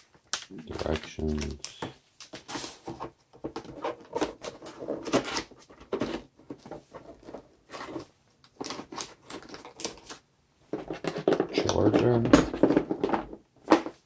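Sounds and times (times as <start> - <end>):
paper rustling and crinkling: 0.0 - 10.2.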